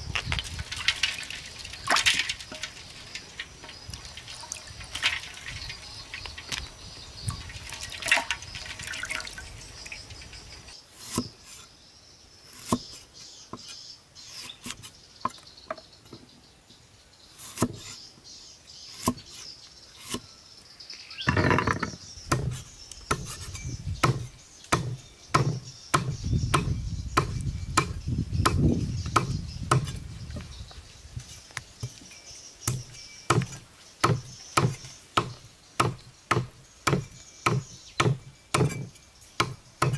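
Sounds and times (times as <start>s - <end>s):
knife chopping on wooden block: 21.4s - 30.0s, 32.7s - 39.9s.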